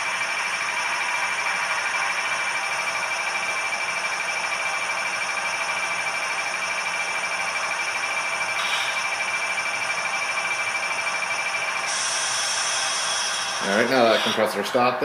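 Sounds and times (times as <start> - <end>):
constant high whine: 0.0 - 15.0
diesel engine through small speaker: 11.9 - 15.0.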